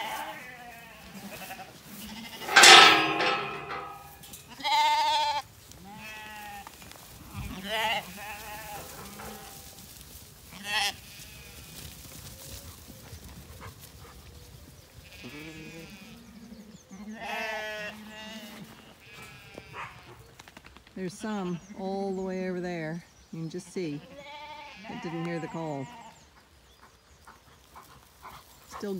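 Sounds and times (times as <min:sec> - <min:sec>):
sheep bleating: 0:00.0 - 0:06.7, 0:10.5 - 0:11.7, 0:15.0 - 0:16.3, 0:17.1 - 0:20.2, 0:24.0 - 0:26.2.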